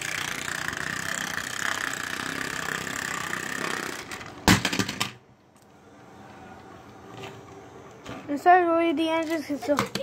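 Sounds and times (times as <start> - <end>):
toy train motor whirring: 0.0 - 4.4
plastic knocks clattering: 9.7 - 10.0.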